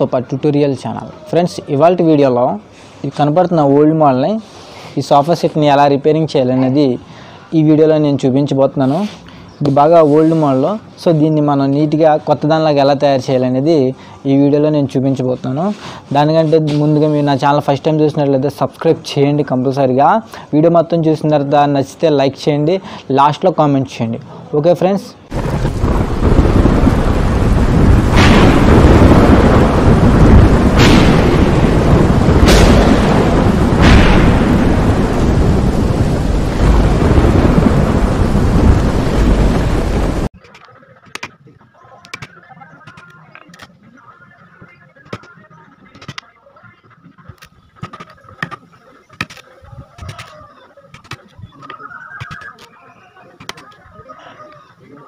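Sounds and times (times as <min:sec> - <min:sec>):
deep thunder rumble: 0:25.3 - 0:40.3
rain: 0:25.3 - 0:40.3
sharp crack of thunder: 0:25.3 - 0:40.3.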